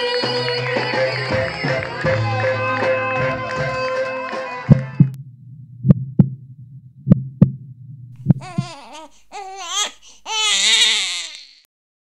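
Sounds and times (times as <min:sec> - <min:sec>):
low hum: 0:04.7 - 0:08.8
slow heartbeat thumps: 0:04.7 - 0:09.0
newborn baby crying: 0:08.2 - 0:11.7.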